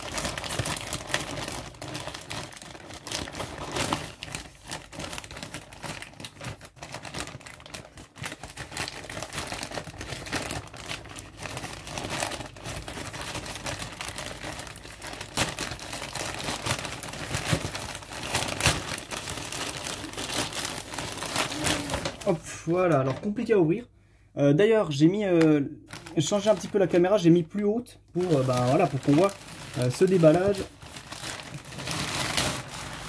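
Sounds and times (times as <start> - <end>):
plastic bag crinkling: 0.0 - 23.5, 25.9 - 33.0.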